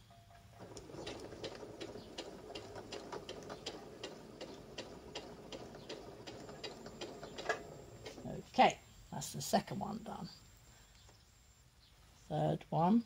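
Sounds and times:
sewing machine needle ticking: 0.6s - 8.3s
sewing machine motor hum: 0.6s - 8.5s.

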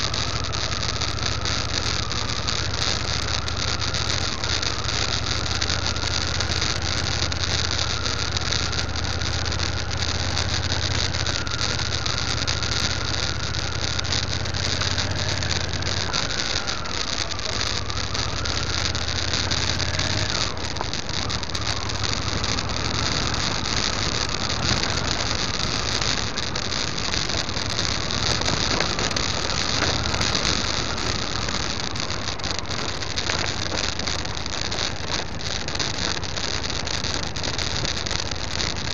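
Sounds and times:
gravel clicks and rattles: 0.0s - 38.9s
motorcycle engine drone: 0.0s - 38.9s
road and wind noise: 0.0s - 38.9s.

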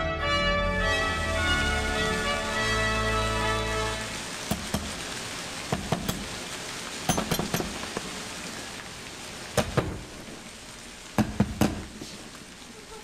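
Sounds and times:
rain sound effect hissing: 0.4s - 13.0s
sharp knocks and taps: 4.5s - 5.0s, 5.7s - 6.3s, 7.1s - 8.1s, 11.2s - 11.9s.

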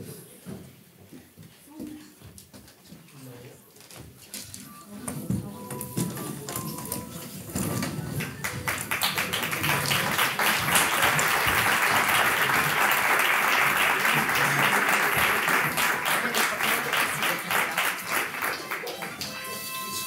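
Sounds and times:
audience applauding: 8.1s - 20.0s.

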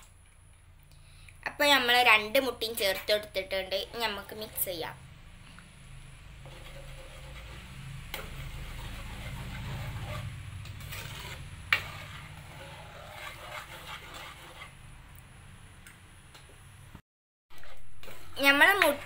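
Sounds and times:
metal ladle stirring curry: 6.4s - 14.7s, 17.6s - 19.0s.

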